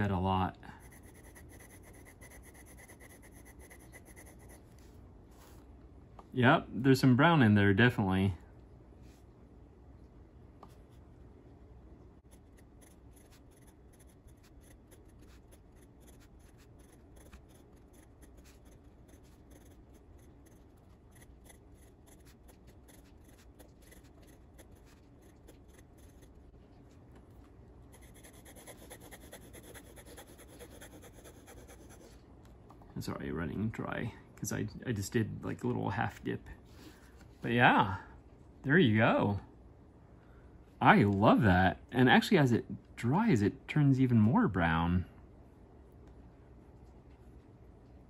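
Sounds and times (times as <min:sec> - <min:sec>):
pen nib scratching on paper: 0:00.8 - 0:04.8, 0:12.2 - 0:26.4, 0:27.9 - 0:32.2.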